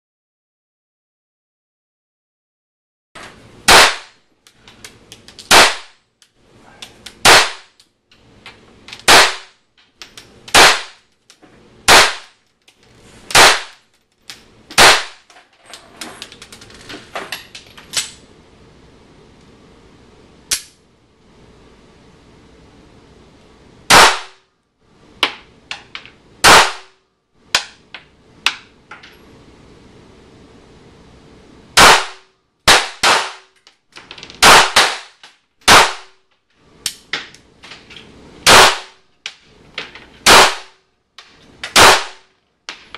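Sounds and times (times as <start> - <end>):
pistol shots with echo: 3.7 - 4.2, 5.5 - 5.9, 7.2 - 7.7, 9.1 - 9.5, 10.5 - 11.0, 11.9 - 12.3, 13.4 - 13.8, 14.8 - 15.2, 23.9 - 24.4, 26.4 - 26.9, 31.8 - 33.5, 34.4 - 35.1, 35.7 - 36.1, 38.5 - 39.0, 40.3 - 40.7, 41.8 - 42.2.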